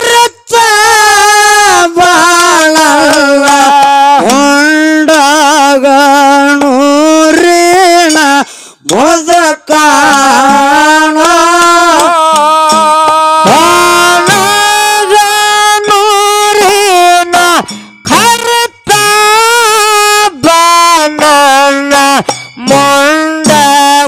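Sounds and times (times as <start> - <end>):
hand-cymbal strokes: 15.8 - 20.0.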